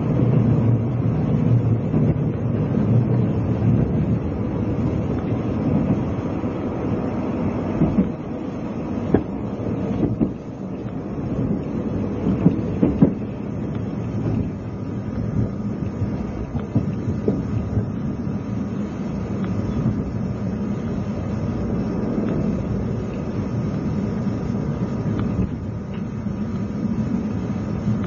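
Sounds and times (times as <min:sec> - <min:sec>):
train running low rumble: 0:00.0 - 0:28.0
wheels knocking over rail joints: 0:07.4 - 0:18.3.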